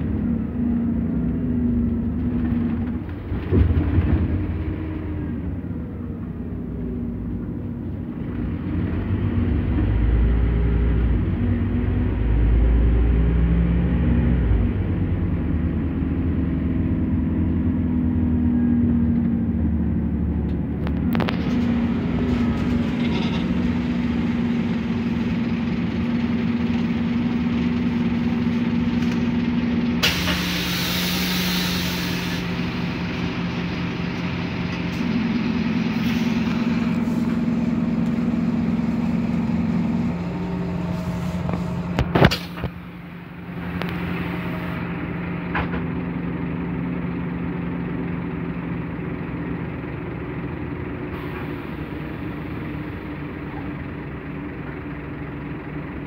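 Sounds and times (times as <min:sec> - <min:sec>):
bus diesel engine hum: 0:00.0 - 0:56.0
hiss of air: 0:30.0 - 0:32.5.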